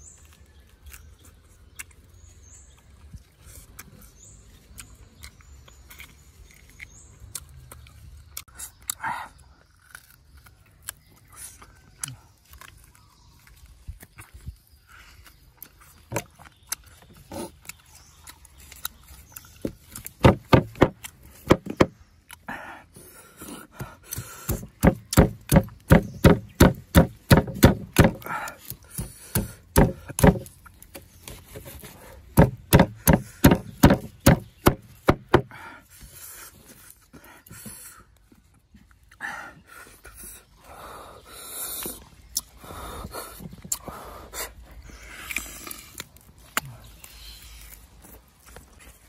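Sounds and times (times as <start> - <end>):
sharp knocks: 20.2 - 22.0, 24.5 - 28.2, 29.0 - 30.5, 32.4 - 35.5.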